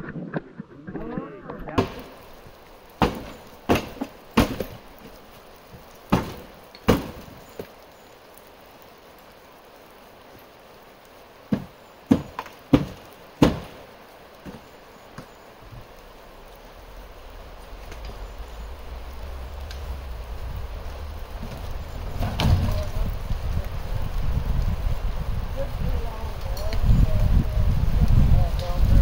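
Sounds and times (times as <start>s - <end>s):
sharp knocks and bangs: 3.0s - 4.8s, 6.1s - 7.4s, 11.5s - 13.8s.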